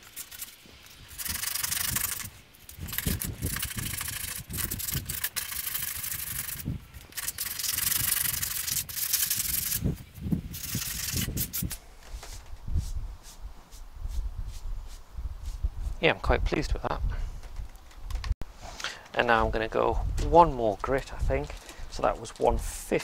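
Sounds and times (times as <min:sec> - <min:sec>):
hand sanding strokes: 0:00.0 - 0:16.0.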